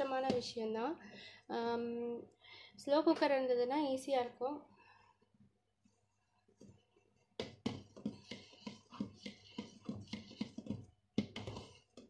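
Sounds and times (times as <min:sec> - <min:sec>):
paste stirred in a steel pot: 0:05.8 - 0:12.0.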